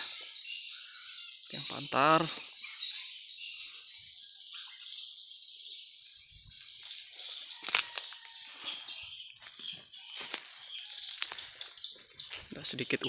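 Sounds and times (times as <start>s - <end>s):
faint bird chirps: 0.0s - 13.0s
insects chorus: 0.0s - 13.0s
rustling crackle: 7.6s - 8.4s, 9.4s - 12.5s.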